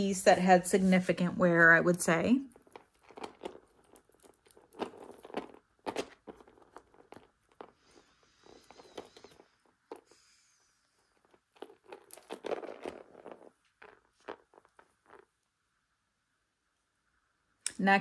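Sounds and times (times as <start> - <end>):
jewelry clinking on plastic tray: 1.6 - 10.1, 11.1 - 15.2.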